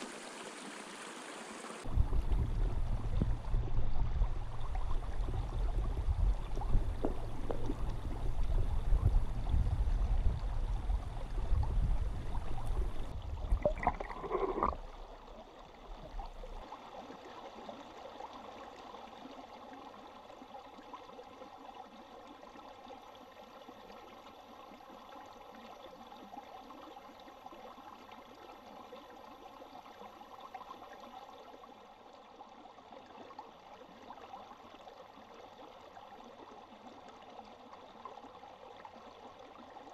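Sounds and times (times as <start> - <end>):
faint steady hiss: 0.0 - 17.2
faint hum: 1.9 - 16.6
underwater current rumble: 1.9 - 16.6
underwater knocks: 13.4 - 14.8.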